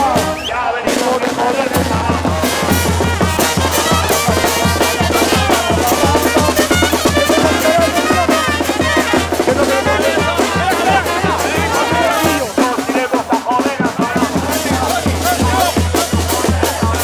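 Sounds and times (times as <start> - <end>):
snare and bass drums beating: 0.0 - 17.0
trumpets playing: 0.0 - 17.0.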